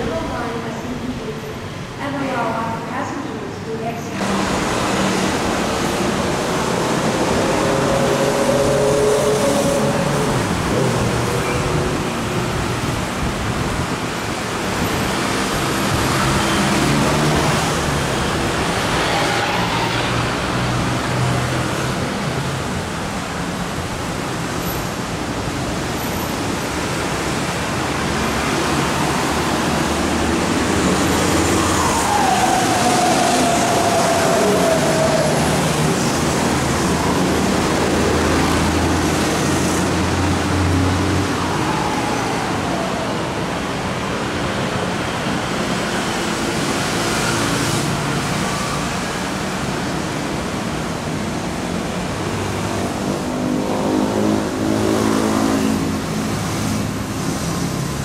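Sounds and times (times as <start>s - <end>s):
monorail train rumble: 0.0s - 58.0s
road traffic: 0.0s - 58.0s.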